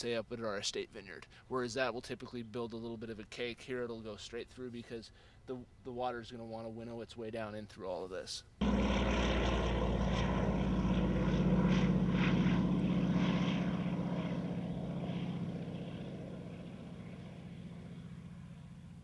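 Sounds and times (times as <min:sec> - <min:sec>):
propeller plane passing low: 0:08.6 - 0:19.0.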